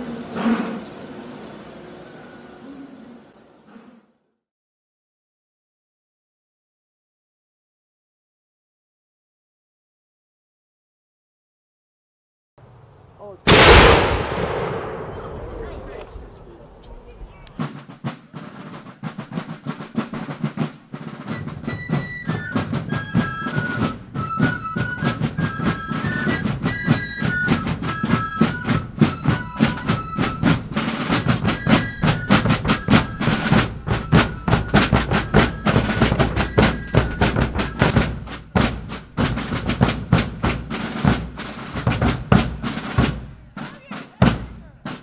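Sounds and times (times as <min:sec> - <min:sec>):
snare drum rolls and beats: 0:13.5 - 0:45.0.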